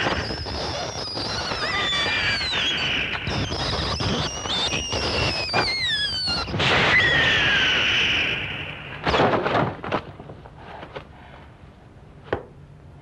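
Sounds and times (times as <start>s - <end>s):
high shrieks sliding downward: 0.0s - 9.0s
loud hiss: 0.0s - 9.0s.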